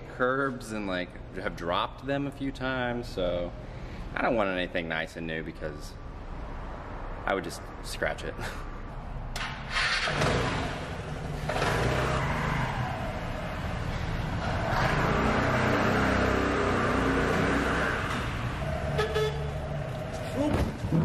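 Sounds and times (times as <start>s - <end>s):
motor scooter engine: 9.4s - 19.9s.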